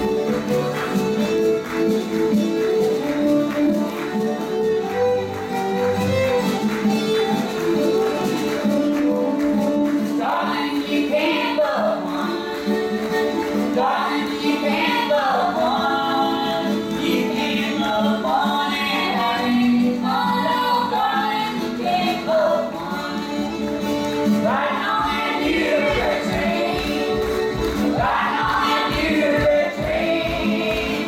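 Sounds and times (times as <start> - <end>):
fiddle: 0.0 - 31.0
strummed acoustic guitars: 0.0 - 31.0
people singing: 10.0 - 31.0.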